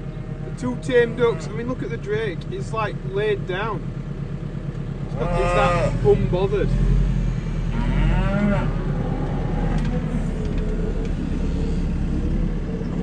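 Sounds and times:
farm vehicle engine running: 0.0 - 13.0
cow mooing: 0.9 - 1.6, 5.1 - 6.1, 6.7 - 11.0.

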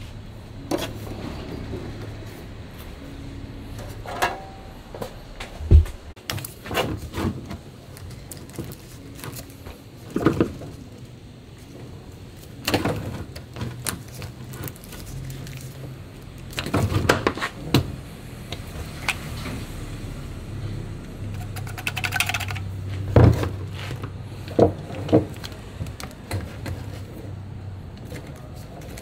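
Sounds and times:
tools clattering and rattling: 3.8 - 4.7
heavy low thump: 5.4 - 6.1.

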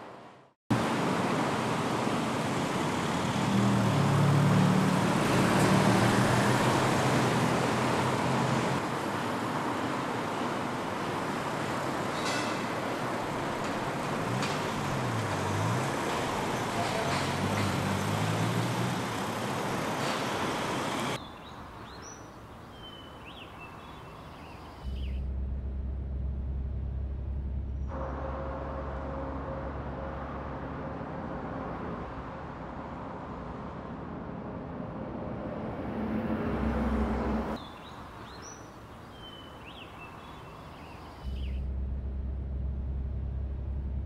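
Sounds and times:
street traffic noise: 0.0 - 44.0
truck engine driving: 0.7 - 21.2, 24.6 - 32.3, 34.0 - 37.6, 41.0 - 44.0
birds chirping: 20.0 - 25.2, 37.6 - 41.6.

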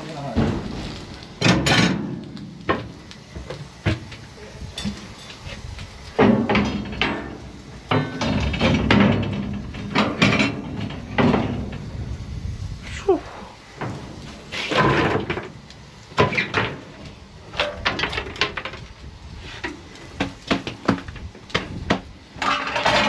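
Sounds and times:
steady low rumble: 0.0 - 14.6
metal clanks and knocks: 0.3 - 4.1, 6.2 - 11.9, 13.8 - 15.6, 16.2 - 16.9, 19.6 - 23.0.

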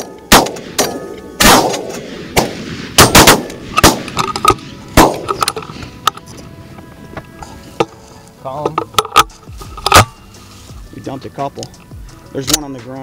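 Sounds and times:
shotgun blasts: 0.0 - 5.4.

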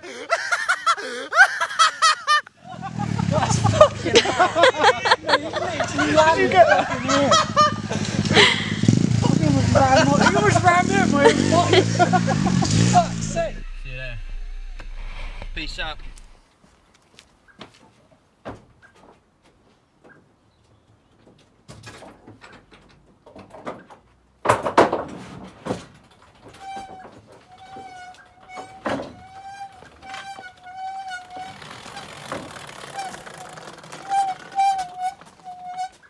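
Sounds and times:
loud bang: 12.4 - 16.4
high wavering tone: 13.1 - 16.4
knocks in metal van load bay: 23.8 - 27.4.

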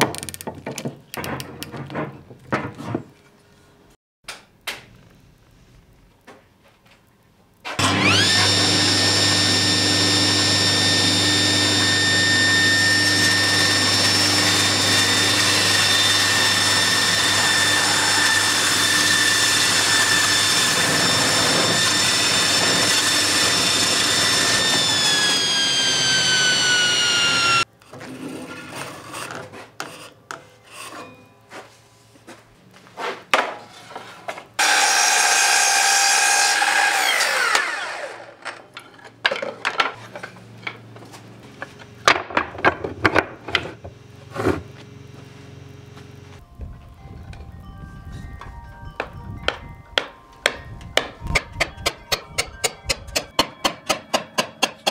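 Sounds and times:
knocks and rattles: 0.0 - 3.2
mitre saw whining: 7.8 - 27.7, 34.6 - 38.5
table saw whining: 7.8 - 27.7, 34.6 - 38.6.

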